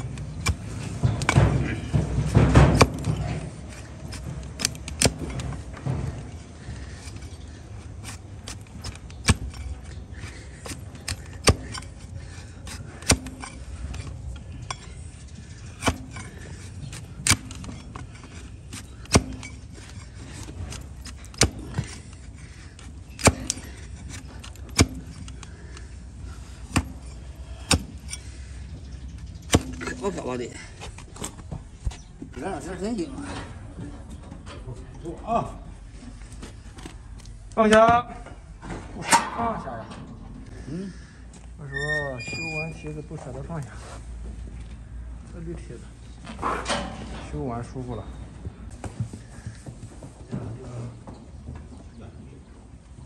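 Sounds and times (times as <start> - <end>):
blade cracking through hoof: 2.3 - 5.5, 15.7 - 22.2, 22.8 - 25.8.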